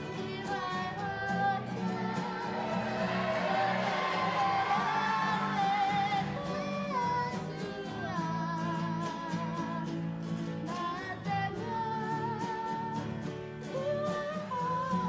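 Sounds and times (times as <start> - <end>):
group singing with vibrato: 0.0 - 8.0
strummed guitars: 0.0 - 15.0.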